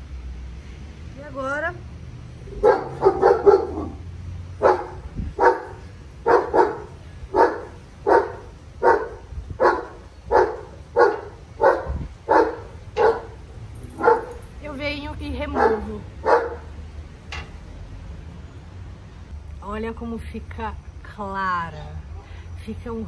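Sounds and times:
dog barking: 0:02.6 - 0:04.0, 0:04.6 - 0:14.4, 0:15.5 - 0:16.7.

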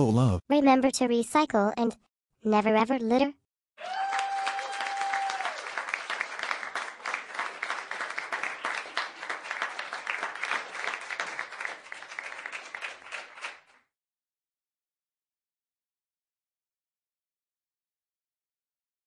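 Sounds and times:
crowd applause: 0:03.8 - 0:13.8.

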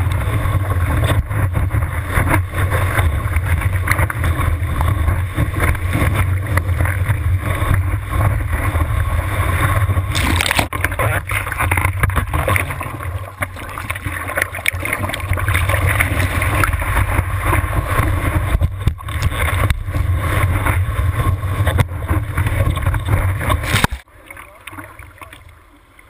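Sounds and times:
low rumble of water buffeting: 0:00.0 - 0:26.0
water rushing and splashing: 0:00.0 - 0:26.0
crackling spray: 0:10.1 - 0:11.6, 0:23.4 - 0:24.0.

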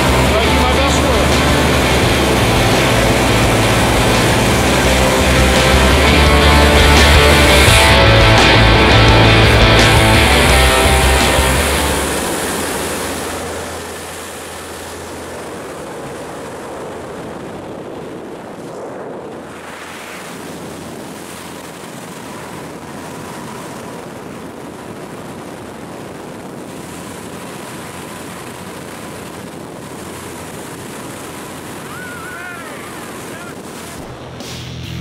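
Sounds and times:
music track: 0:00.0 - 0:14.0
airplane engine and wind noise: 0:00.0 - 0:35.0.

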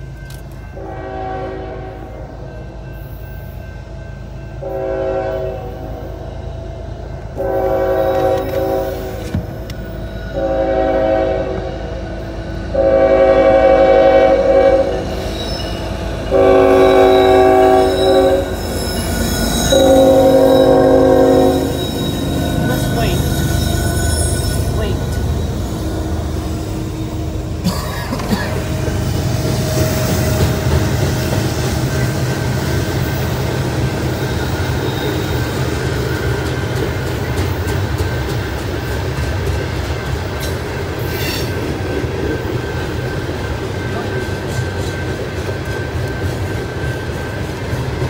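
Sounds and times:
train rumble and rail noise: 0:00.0 - 0:48.0
locomotive air horn blasts: 0:00.8 - 0:02.3, 0:04.6 - 0:06.0, 0:07.4 - 0:09.3, 0:10.3 - 0:11.8, 0:12.7 - 0:15.1, 0:16.3 - 0:18.6, 0:19.6 - 0:26.4.

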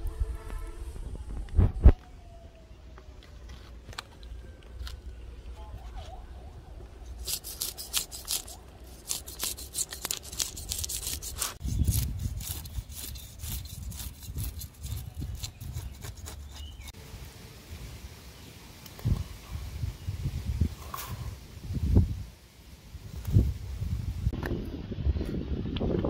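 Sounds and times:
fish scaler scraping scales: 0:07.2 - 0:16.9.

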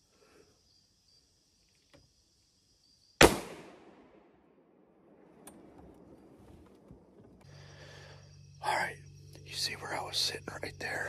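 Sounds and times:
high insect drone: 0:00.0 - 0:03.2, 0:05.8 - 0:11.0
rifle shot with echo: 0:03.2 - 0:05.7.

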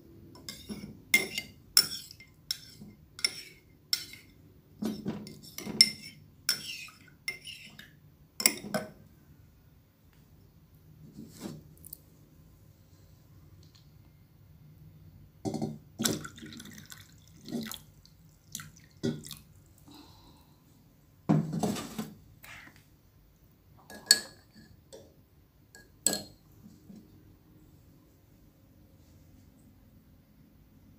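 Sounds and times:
glassware and bowls clinking: 0:00.4 - 0:04.3, 0:23.8 - 0:24.8, 0:25.8 - 0:26.4
liquid sounds: 0:16.0 - 0:19.9.

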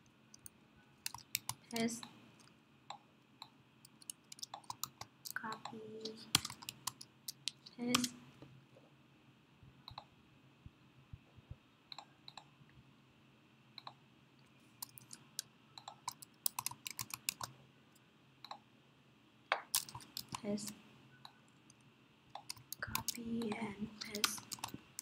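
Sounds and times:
keyboard and mouse clicks: 0:00.4 - 0:08.2, 0:09.9 - 0:10.1, 0:11.9 - 0:12.5, 0:13.8 - 0:14.0, 0:14.8 - 0:17.6, 0:18.4 - 0:18.6, 0:19.5 - 0:21.4, 0:22.3 - 0:25.0.

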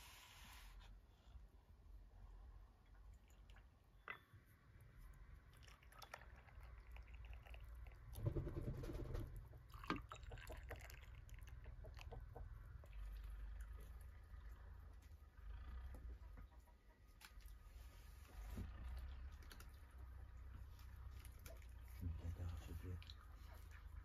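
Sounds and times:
tea pouring: 0:05.5 - 0:08.2, 0:09.7 - 0:12.1.

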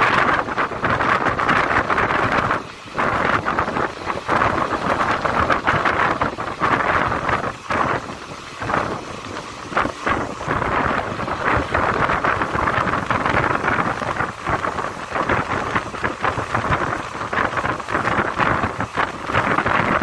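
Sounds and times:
train running on rails: 0:00.0 - 0:20.0
wind buffeting microphone: 0:00.0 - 0:20.0.

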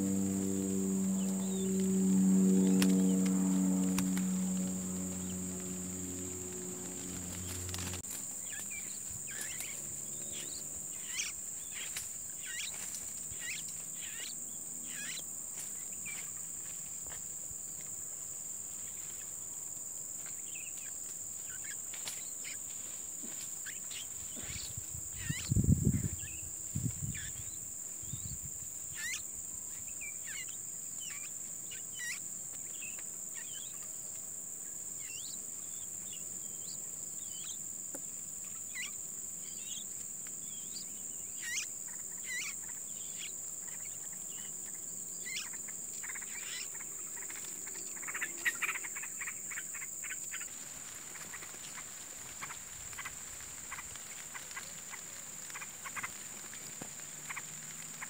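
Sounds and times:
high-pitched insect drone: 0:00.0 - 0:33.9, 0:34.7 - 0:58.0
bird chirps: 0:01.0 - 0:02.0, 0:08.4 - 0:15.2.

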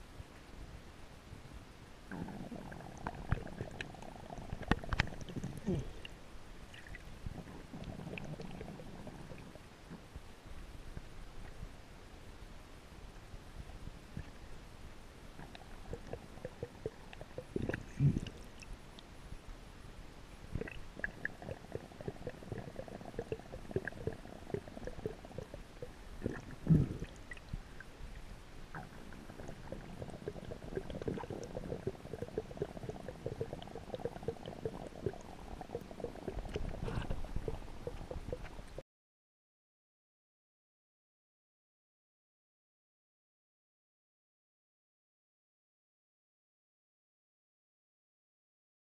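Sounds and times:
muffled underwater rumble: 0:02.0 - 0:12.0, 0:13.2 - 0:18.6, 0:20.5 - 0:38.8.

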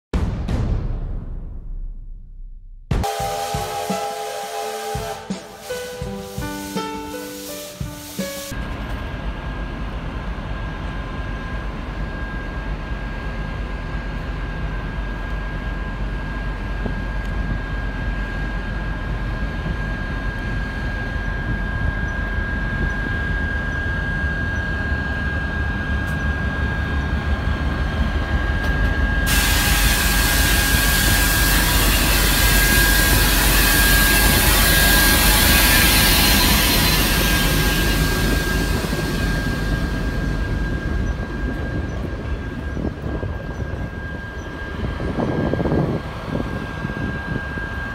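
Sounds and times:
diesel locomotive engine whine: 0:02.9 - 0:47.9
loud hiss: 0:03.1 - 0:08.6, 0:29.3 - 0:40.6.

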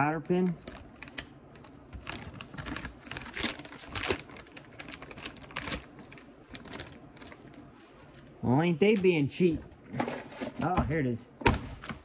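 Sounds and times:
plastic bag rustling: 0:00.4 - 0:08.4.

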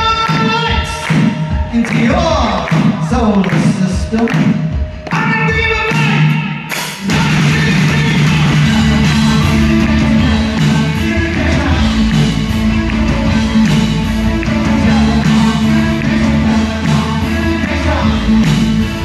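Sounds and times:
drums: 0:00.0 - 0:19.0
person singing: 0:07.0 - 0:19.0
steady bass line: 0:07.0 - 0:19.0.

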